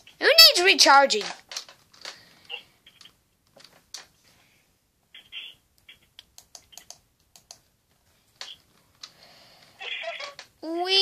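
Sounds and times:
keyboard keys clicking: 5.8s - 7.6s.

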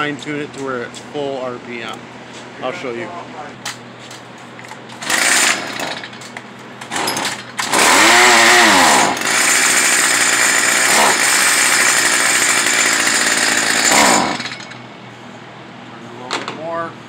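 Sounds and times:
string trimmer engine revving: 5.0s - 6.1s, 6.9s - 14.7s.

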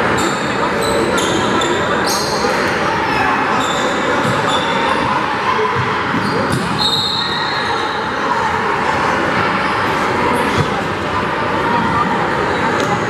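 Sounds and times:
crowd chatter: 0.0s - 13.0s
sneakers squeaking: 0.1s - 8.1s.

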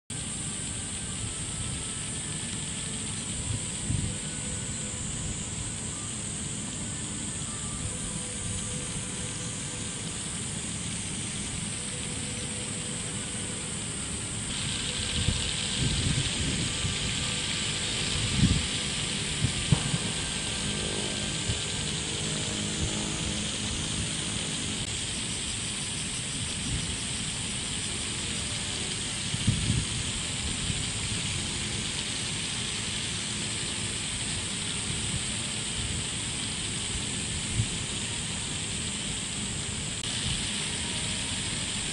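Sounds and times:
pinwheels whirring in wind: 0.1s - 41.9s
wind buffeting microphone: 3.3s - 5.6s, 14.5s - 24.9s, 29.2s - 31.6s.

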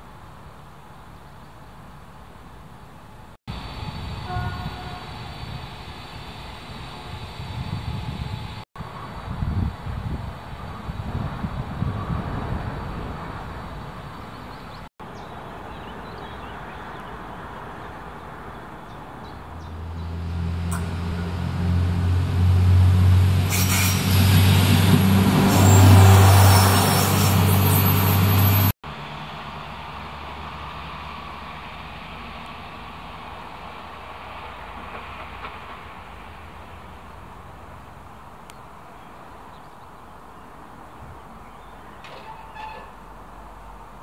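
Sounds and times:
faint outdoor background: 0.0s - 27.1s
railcar engine drone: 0.0s - 44.0s.

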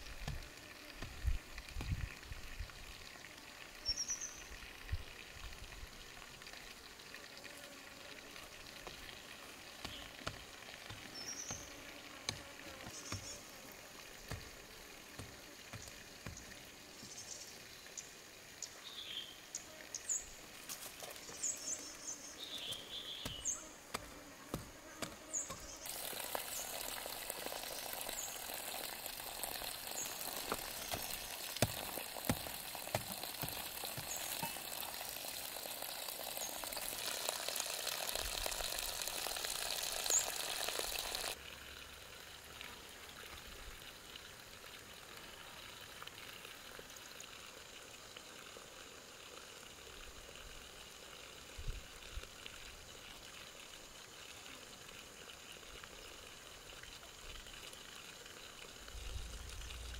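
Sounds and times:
soil rustling and tapping: 0.0s - 2.4s, 8.8s - 17.2s, 20.6s - 21.6s, 22.5s - 38.8s
hand tool scraping soil: 9.8s - 13.4s, 22.5s - 26.0s, 29.8s - 34.9s.

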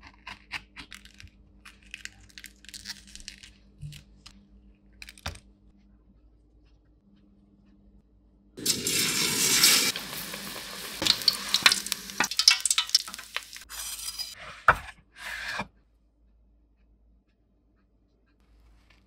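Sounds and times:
chillies sizzling in hot oil: 8.6s - 14.4s
metal skimmer scraping a wok: 10.8s - 14.6s.

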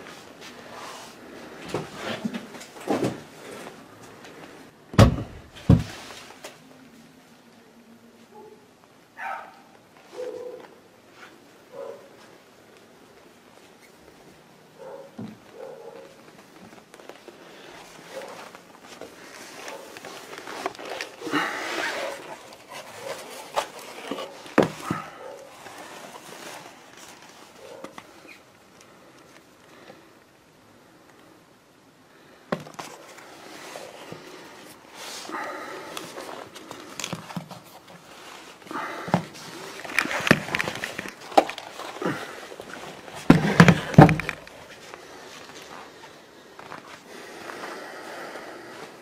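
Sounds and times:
rustling: 9.9s - 30.1s, 32.1s - 47.8s.

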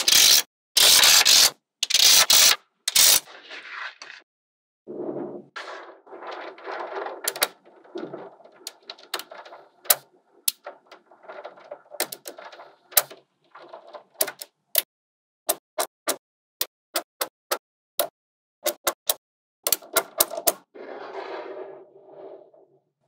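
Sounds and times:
balls scraping and rattling: 1.3s - 4.3s, 4.9s - 14.6s, 19.8s - 22.8s.

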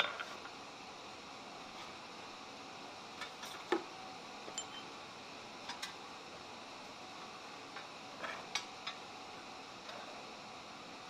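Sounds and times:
metal clinks on an anvil: 4.6s - 4.9s.

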